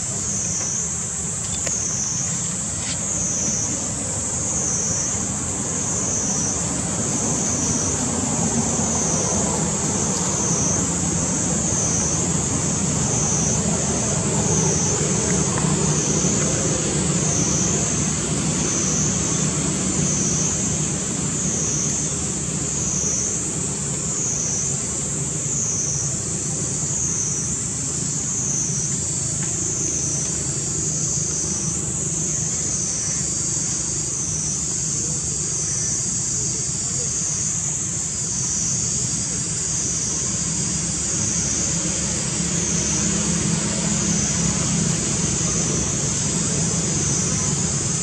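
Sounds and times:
continuous low rumble: 0.0 - 48.0.

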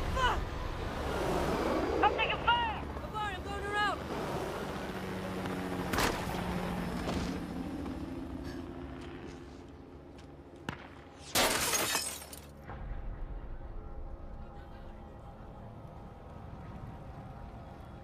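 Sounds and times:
glass shattering: 11.3 - 12.5.

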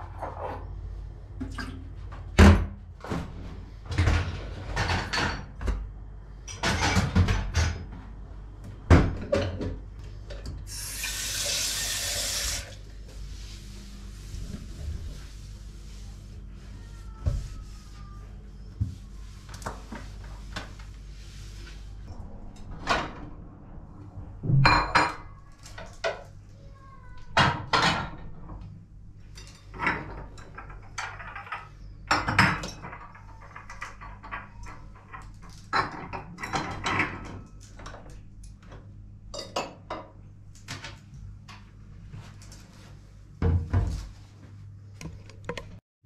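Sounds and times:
dishes clattering: 29.3 - 37.5
dishes and cutlery clinking: 39.3 - 40.2.

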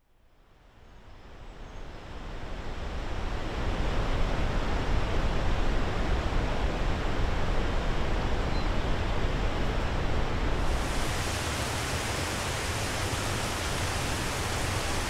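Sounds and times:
waterfall rushing: 10.6 - 15.0.

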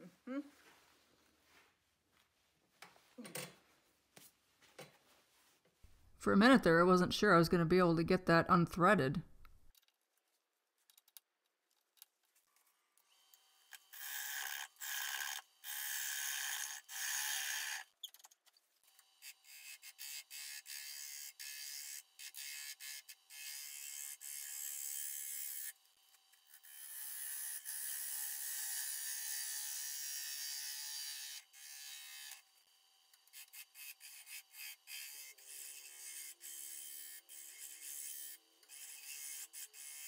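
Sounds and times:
lathe tool scraping wood: 13.9 - 17.8.

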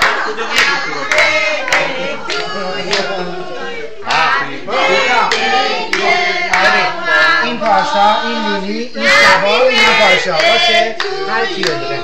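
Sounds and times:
people clapping in time: 0.0 - 3.2, 5.2 - 6.8, 10.4 - 11.9
group singing a celebration song: 0.0 - 12.0.

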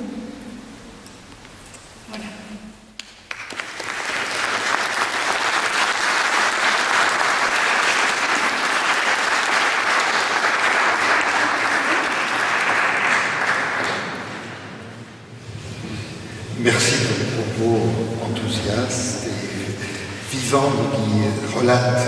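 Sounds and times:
audience applauding: 3.0 - 14.9.

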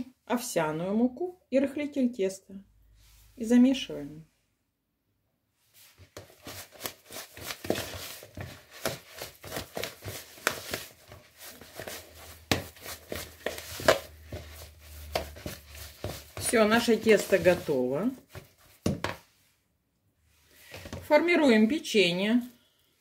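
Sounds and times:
hand kneading dough: 5.8 - 19.5.

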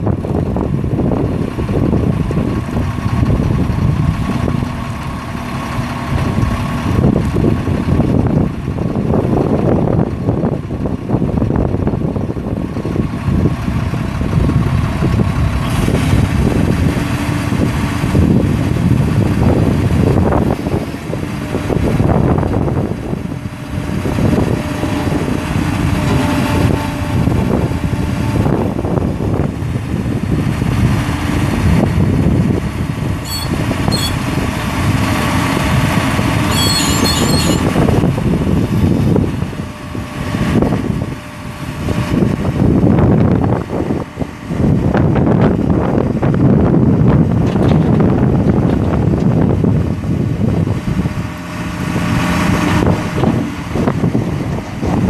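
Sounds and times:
diesel truck engine idling: 0.0 - 47.4.

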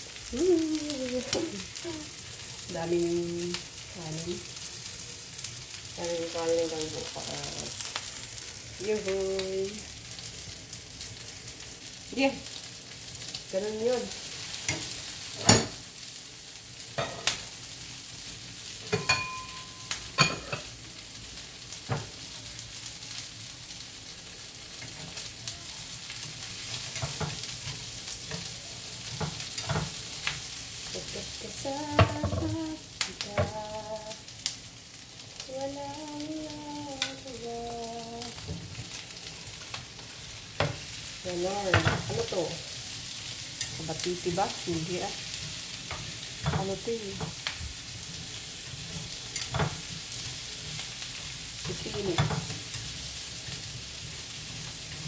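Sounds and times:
meat and onions sizzling in oil: 0.0 - 55.0
chopsticks scraping a pan: 45.3 - 55.0.

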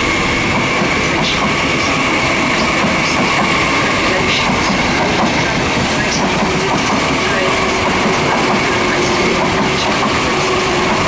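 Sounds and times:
train rolling rumble: 0.0 - 11.0.

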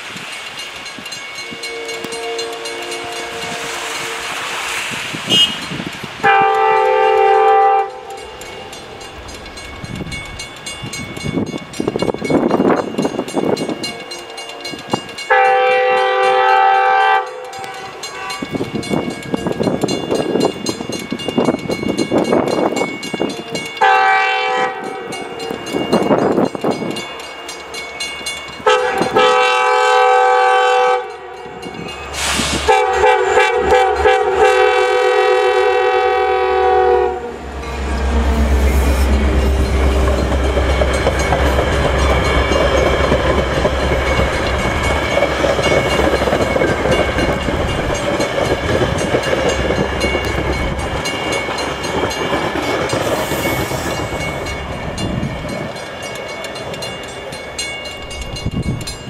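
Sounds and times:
train coaches rolling over rails: 0.0 - 59.0
locomotive horn blasts: 1.4 - 4.6, 5.2 - 8.4, 15.3 - 18.5, 23.8 - 25.2, 28.6 - 31.7, 32.3 - 40.3.

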